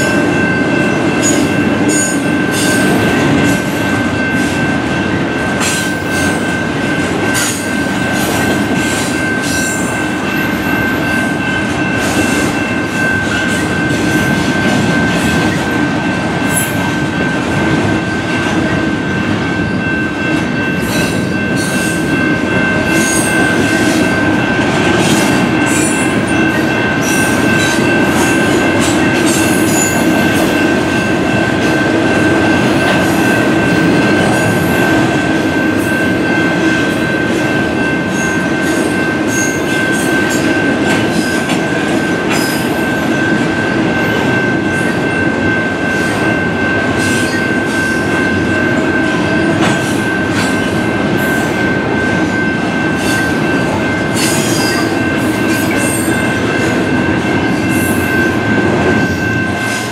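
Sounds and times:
freight train rumbling: 0:00.0 - 0:59.9.

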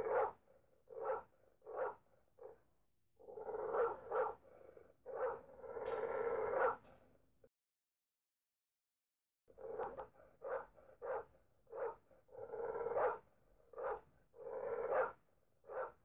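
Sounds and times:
dog barking: 0:00.0 - 0:02.6, 0:03.4 - 0:04.4, 0:05.1 - 0:06.8, 0:09.7 - 0:16.0.

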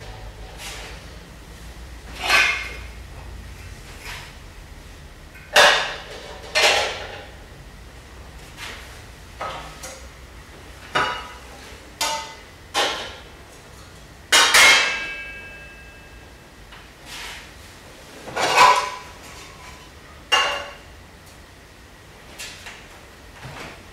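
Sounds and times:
metal bowls and pans clanking: 0:02.1 - 0:03.0, 0:14.4 - 0:16.0.

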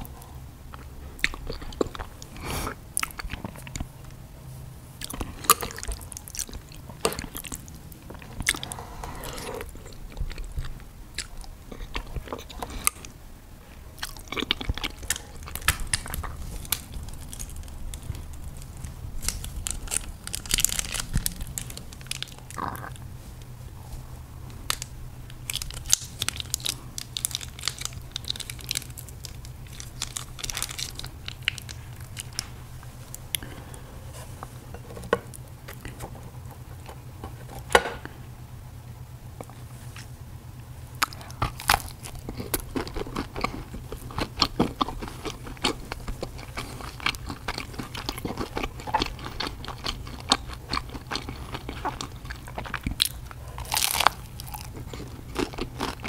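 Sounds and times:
chewing and wet mouth sounds: 0:00.0 - 0:04.3, 0:05.0 - 0:13.2, 0:13.9 - 0:37.1, 0:40.9 - 0:56.0
plastic sachet crinkling: 0:14.8 - 0:23.1, 0:24.6 - 0:33.2.

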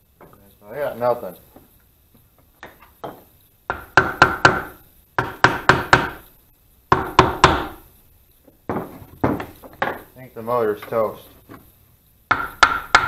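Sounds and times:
hammer knocking on metal housing: 0:02.6 - 0:06.2, 0:06.9 - 0:07.8, 0:08.7 - 0:10.0, 0:12.3 - 0:13.0.

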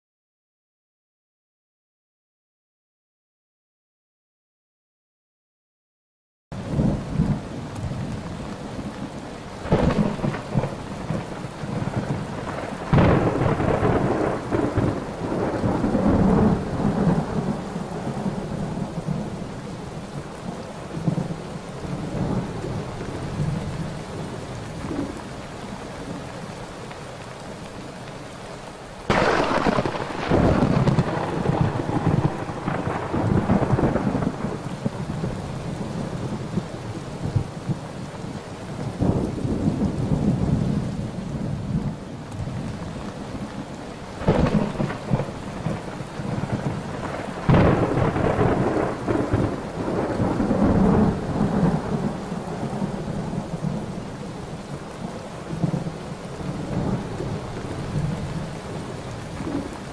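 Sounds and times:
thunder cracking and rumbling: 0:06.6 - 0:19.4, 0:29.1 - 0:37.9, 0:38.8 - 0:42.7, 0:44.2 - 0:54.0, 0:55.5 - 0:59.9
rain hissing: 0:06.6 - 0:59.9.

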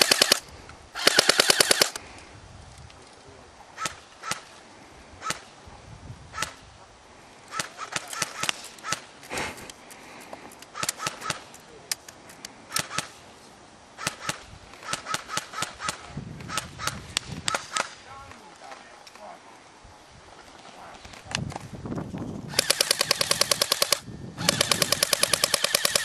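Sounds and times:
airsoft guns firing: 0:00.0 - 0:00.4, 0:01.0 - 0:02.0, 0:22.5 - 0:26.0.

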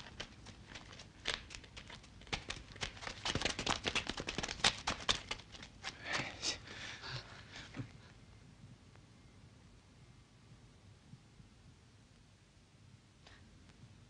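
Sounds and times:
shrubbery rustling and crackling: 0:00.0 - 0:06.6.

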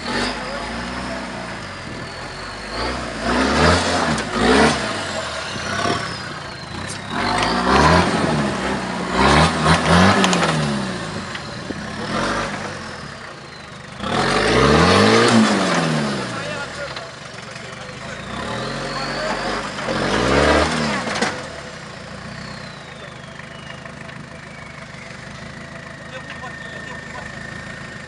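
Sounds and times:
faint high whistle: 0:00.0 - 0:03.3, 0:05.4 - 0:08.2, 0:18.0 - 0:19.7, 0:22.3 - 0:25.6, 0:26.2 - 0:28.0
diesel engine revving: 0:00.0 - 0:28.0.

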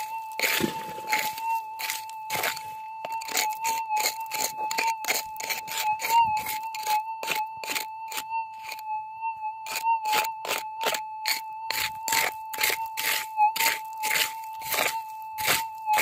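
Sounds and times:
pick crunching into gravel: 0:00.0 - 0:07.8, 0:11.7 - 0:16.0
metal detector high tone: 0:00.0 - 0:16.0.

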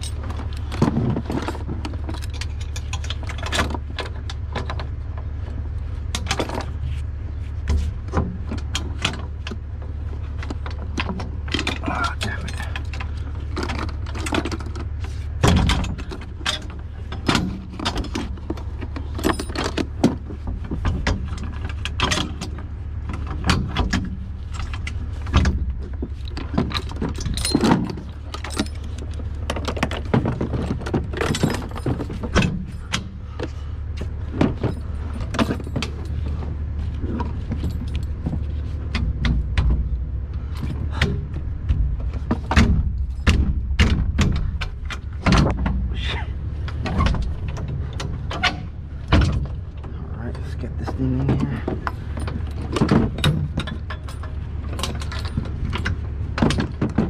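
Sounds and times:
metal latch and chain clanking: 0:00.0 - 0:05.0, 0:06.1 - 0:06.8, 0:10.3 - 0:57.0
truck engine idling: 0:00.0 - 0:57.0.

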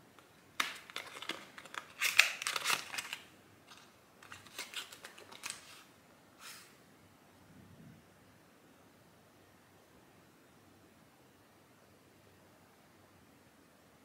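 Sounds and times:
packaging clicks: 0:00.6 - 0:05.8
crinkly box rustles: 0:00.6 - 0:05.9.

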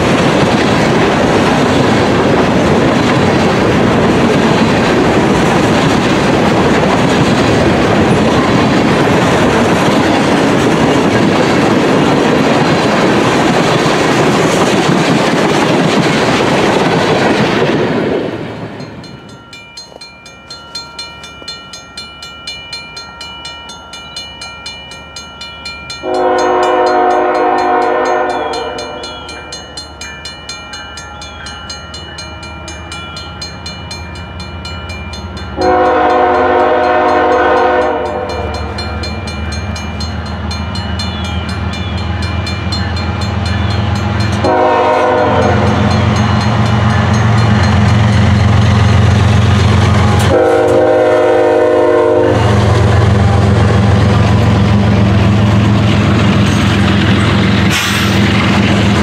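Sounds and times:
freight train wheels on rail: 0:00.0 - 0:59.0
locomotive chime horn: 0:25.9 - 0:30.2, 0:35.0 - 0:48.8, 0:49.8 - 0:53.9.

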